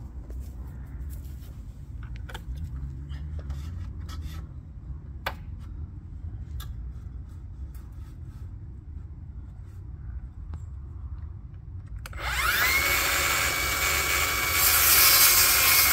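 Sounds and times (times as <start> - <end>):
low steady rumble: 0.0 - 12.4.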